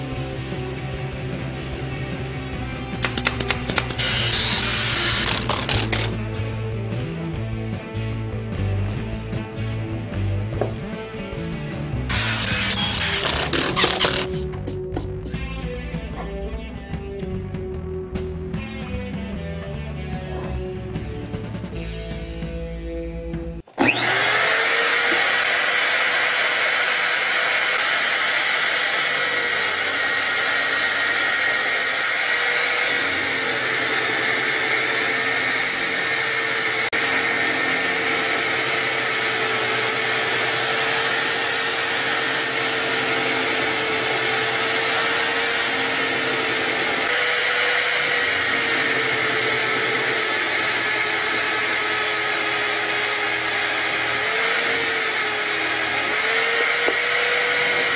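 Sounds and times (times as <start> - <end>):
electric drill whining: 3.0 - 6.3, 12.1 - 14.5, 23.7 - 57.9.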